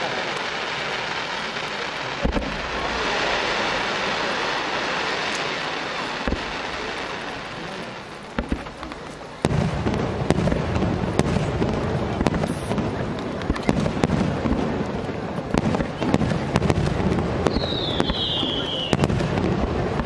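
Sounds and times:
fireworks bangs and crackling: 0:00.0 - 0:20.0
fireworks hiss: 0:00.0 - 0:20.0.

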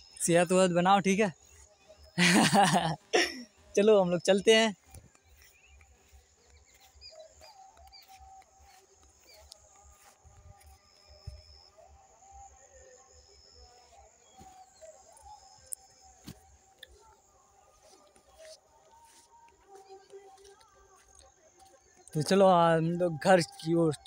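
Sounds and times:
distant music from loudspeaker: 0:03.6 - 0:24.0.

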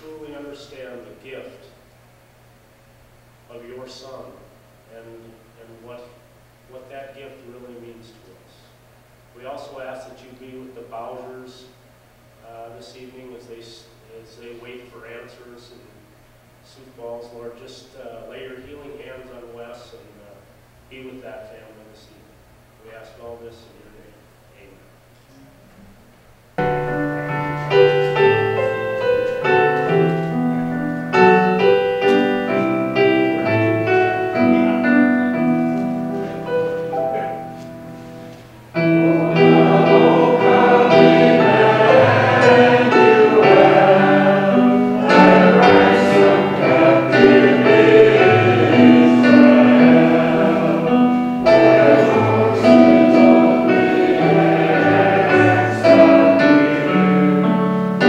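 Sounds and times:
piano playing: 0:26.6 - 0:58.0
choir singing: 0:38.8 - 0:58.0.

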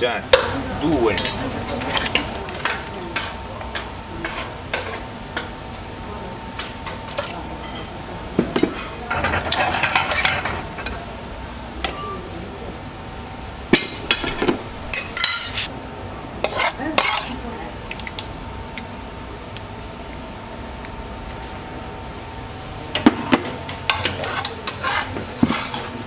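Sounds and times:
metal tongs clinking on pan and plates: 0:00.3 - 0:05.5, 0:08.6 - 0:11.0, 0:13.7 - 0:15.7, 0:22.9 - 0:26.0
stirring in a pan: 0:01.2 - 0:05.6, 0:16.4 - 0:17.4, 0:22.9 - 0:26.0.

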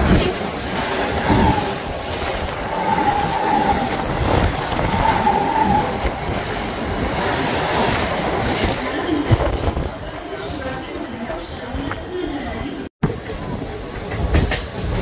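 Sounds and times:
train wheels rumbling on rails: 0:00.0 - 0:15.0.

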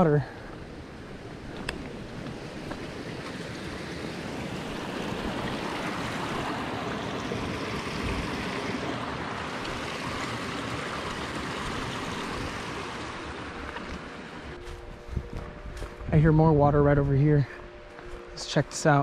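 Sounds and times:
creek rushing: 0:00.0 - 0:14.9.

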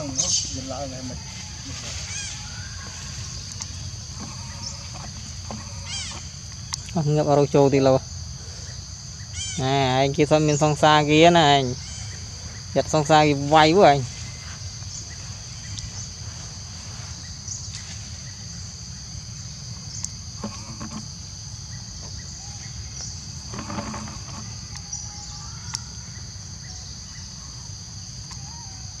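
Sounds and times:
high-pitched insect chorus: 0:00.0 - 0:29.0
faint clicks and rustles: 0:19.7 - 0:21.2, 0:22.9 - 0:25.0.

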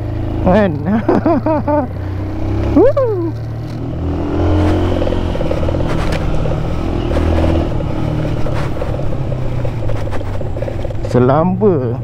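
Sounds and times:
motorcycle engine running: 0:00.0 - 0:12.0
motorcycle rattling over stones: 0:02.7 - 0:11.6.

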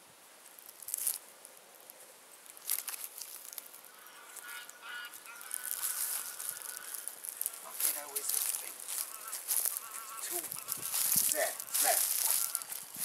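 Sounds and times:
scuffs and rustles on rocks: 0:05.4 - 0:13.0.

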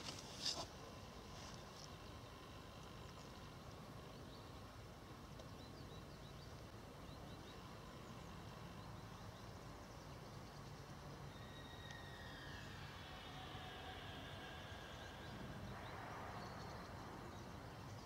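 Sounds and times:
faint low hiss: 0:00.0 - 0:18.0
small birds chirping: 0:00.4 - 0:12.8.

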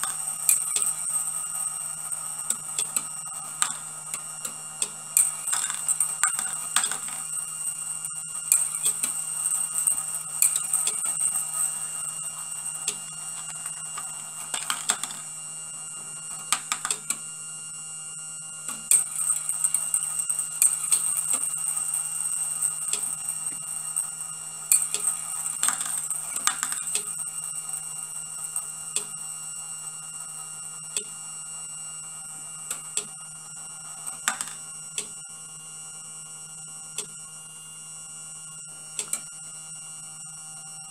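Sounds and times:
steel ball clicking: 0:00.0 - 0:01.7, 0:02.4 - 0:15.3, 0:18.7 - 0:24.1, 0:24.7 - 0:27.2
small electric motor whining: 0:00.0 - 0:40.9.

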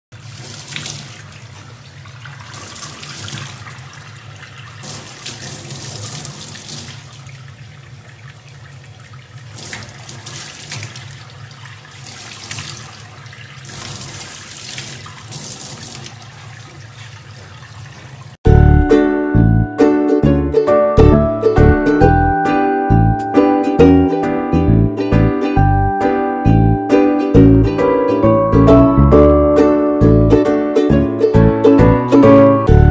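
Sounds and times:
tap water splashing into metal sink: 0:00.2 - 0:07.5, 0:08.1 - 0:18.3.

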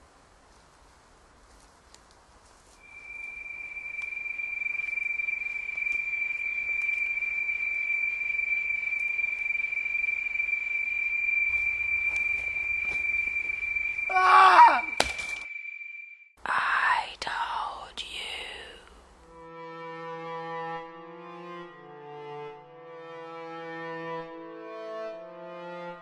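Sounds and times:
steady high-pitched tone: 0:02.7 - 0:17.0
short loud falling cry: 0:14.1 - 0:15.0.

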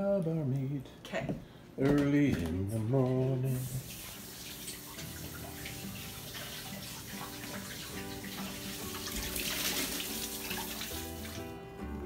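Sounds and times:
kitchen faucet running: 0:03.4 - 0:11.6
water splashing into sink: 0:03.6 - 0:11.4.

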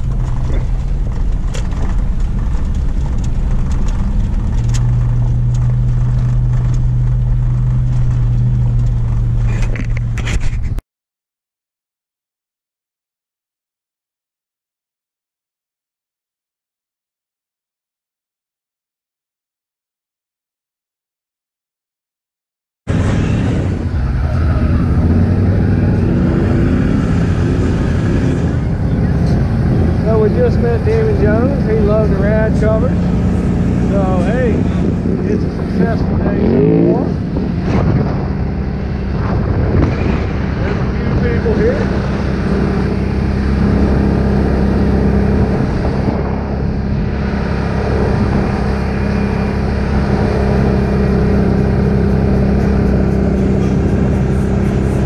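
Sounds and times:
atv engine running: 0:00.0 - 0:10.7, 0:22.9 - 0:55.0
vehicle driving on gravel road: 0:00.0 - 0:10.8, 0:22.9 - 0:55.0.

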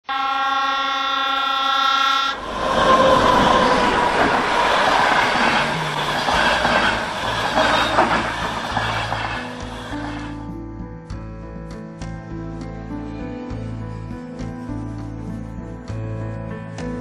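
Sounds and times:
locomotive horn: 0:00.0 - 0:10.3
passenger train passing: 0:00.1 - 0:10.4.

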